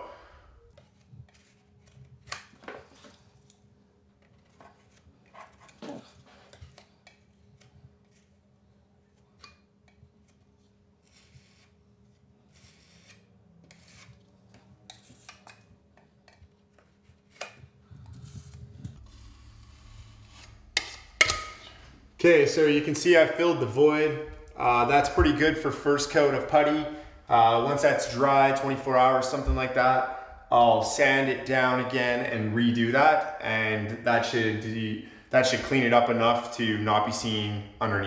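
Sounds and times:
putty knife scraping and clicking: 20.1s - 21.8s.

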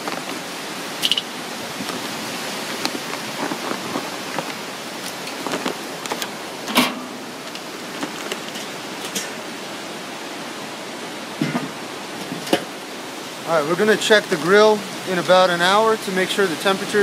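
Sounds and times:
steady hiss: 0.0s - 17.0s
metal clank: 1.0s - 1.4s, 6.7s - 7.2s, 8.5s - 9.4s, 11.4s - 12.7s.

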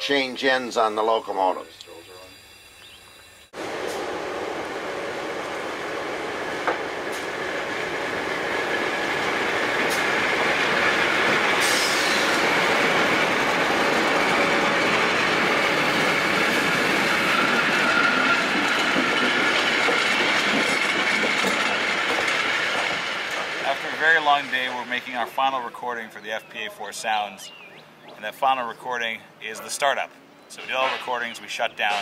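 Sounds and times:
diesel locomotive engines: 0.0s - 32.0s
wheels squealing on rails: 6.5s - 26.3s.

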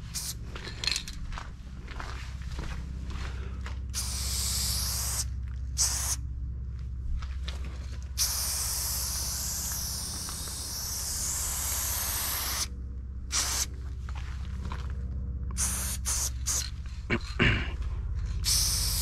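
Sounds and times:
spray paint can hissing: 0.0s - 0.4s, 4.0s - 6.2s, 8.2s - 12.7s, 13.3s - 13.7s, 15.5s - 16.7s, 18.4s - 19.0s
steady low hum: 0.0s - 19.0s.

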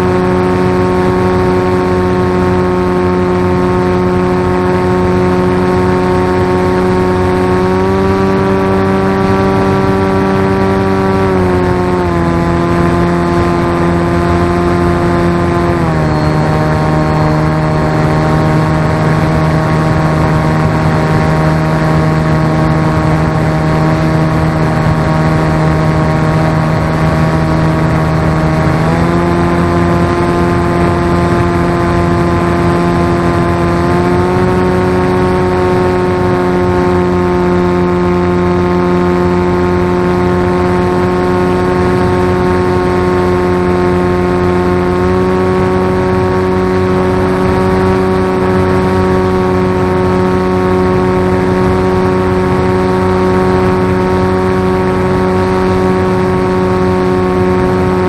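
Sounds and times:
motor and propeller drone: 0.0s - 58.0s.

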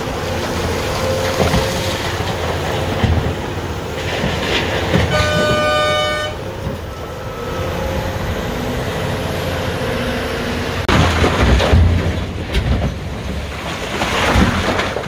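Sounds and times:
excavator diesel engine working: 0.0s - 14.1s
horn blast: 5.0s - 6.5s.

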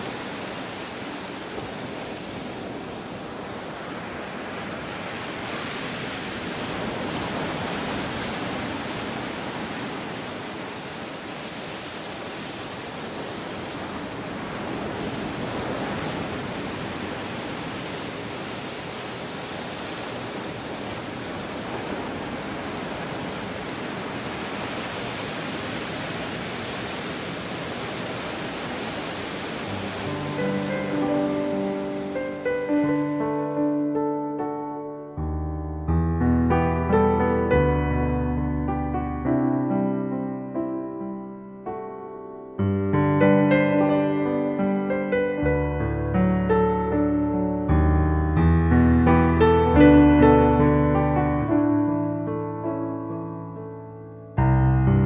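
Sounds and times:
waves breaking on beach: 0.0s - 35.2s, 43.2s - 47.8s
piano music: 29.6s - 55.0s.

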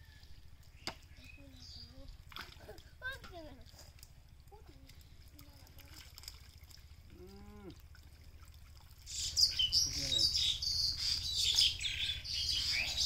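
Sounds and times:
small birds chirping: 0.0s - 2.8s, 9.0s - 13.0s.

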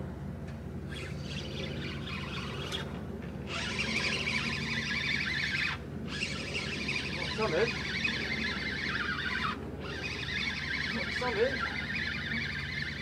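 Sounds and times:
fishing reel winding: 3.5s - 13.0s.

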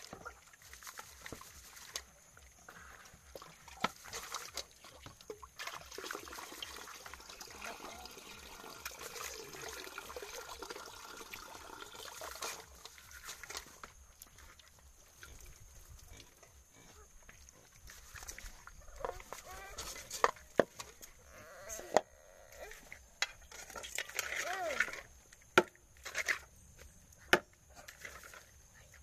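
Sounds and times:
wet squelching and scrubbing: 0.0s - 10.5s, 12.0s - 16.0s, 16.9s - 25.0s
animal calling: 21.2s - 22.9s.

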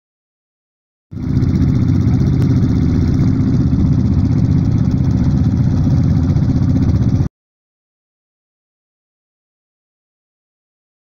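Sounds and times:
quad bike engine running: 1.2s - 7.3s.

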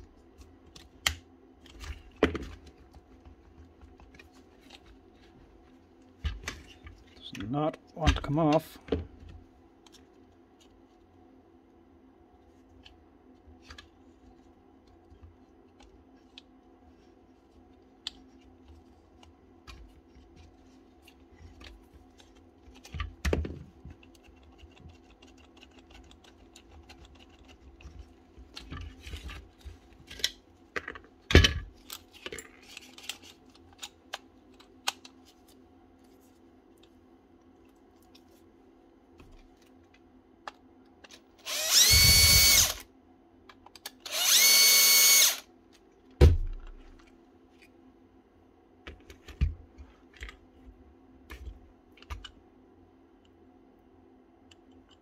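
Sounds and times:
power tool motor whining: 41.5s - 42.8s, 44.1s - 45.4s.

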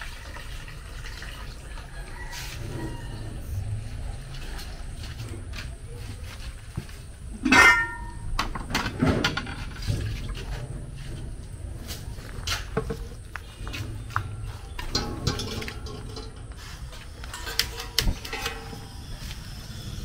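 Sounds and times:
ringing pot clang: 7.4s - 8.3s, 14.3s - 16.4s, 17.3s - 19.1s
metal pots knocking together: 7.4s - 10.4s, 14.0s - 16.6s, 17.2s - 19.0s.

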